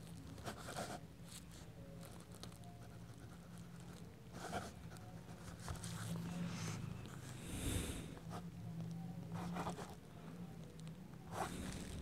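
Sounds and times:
pen scratching on paper: 0.4s - 1.0s, 9.4s - 10.0s.

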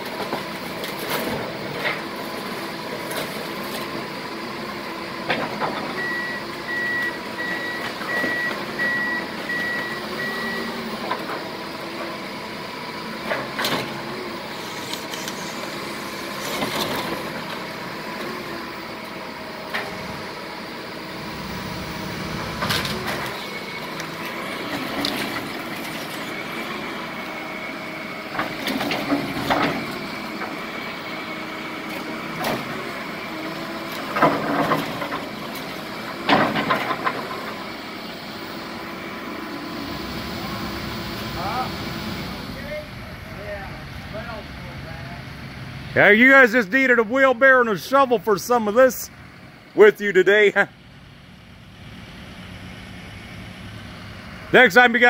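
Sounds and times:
heavy diesel machinery running: 0.0s - 55.0s.

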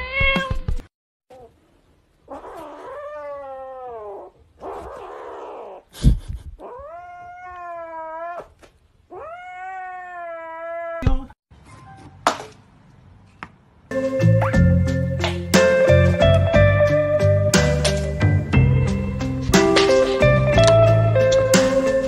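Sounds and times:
kitten yowling: 2.3s - 5.8s, 6.6s - 11.2s
music: 13.9s - 22.0s.

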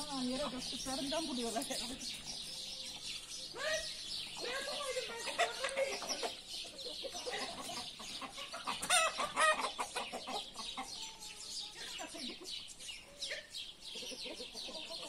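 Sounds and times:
hens clucking: 0.0s - 15.0s
drawn-out rooster call: 7.3s - 12.3s.

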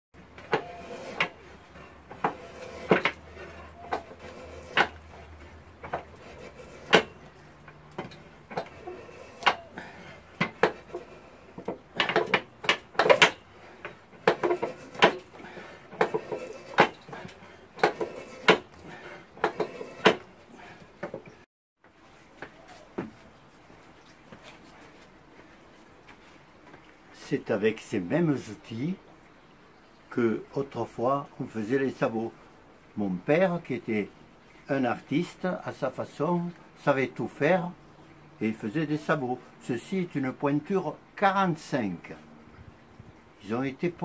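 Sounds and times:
knife shaving wood: 0.3s - 7.6s, 8.2s - 20.9s.

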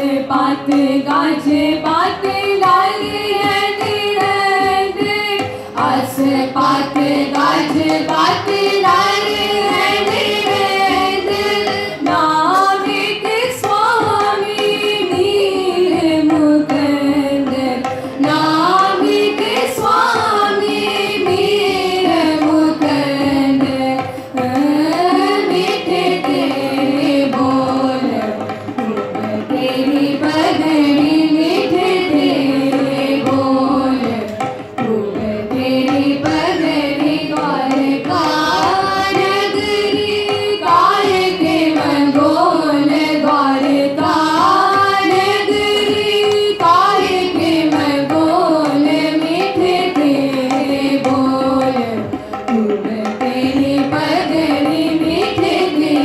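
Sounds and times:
women singing a hymn: 0.0s - 28.4s, 29.3s - 56.0s
tabla: 0.0s - 56.0s.

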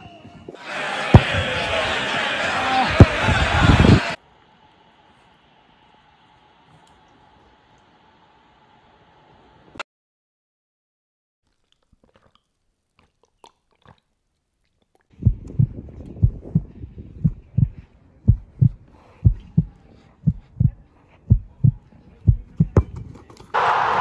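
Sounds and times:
heartbeat thumping: 1.2s - 1.7s, 2.9s - 4.0s, 15.2s - 23.1s
loud rushing noise: 2.6s - 4.2s, 23.6s - 24.0s.

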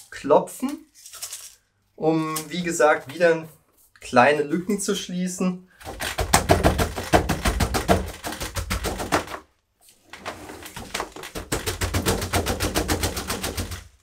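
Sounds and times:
rapid knocking on plant pot: 5.9s - 9.4s, 11.2s - 14.0s.

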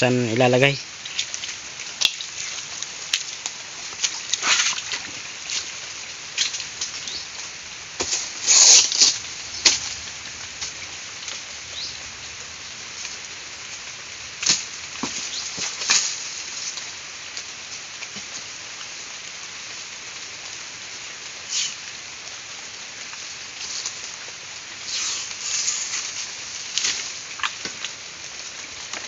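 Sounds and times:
palm fronds and dry leaves rustling: 0.0s - 29.0s.

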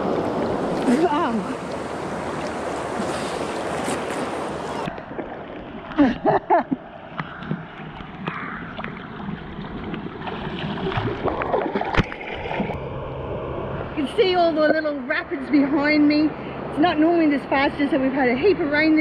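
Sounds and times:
water splashing: 0.0s - 12.8s.

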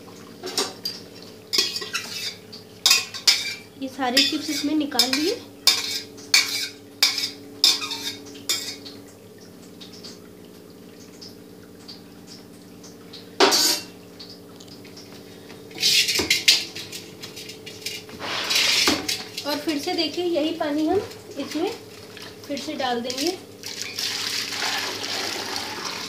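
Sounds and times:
steel utensils clinking: 1.5s - 8.8s, 13.4s - 13.9s.

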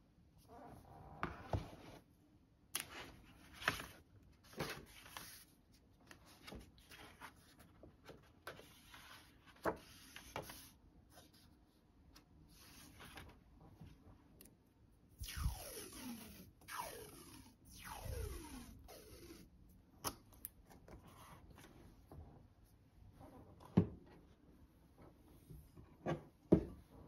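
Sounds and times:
paper rustling: 2.8s - 11.5s.

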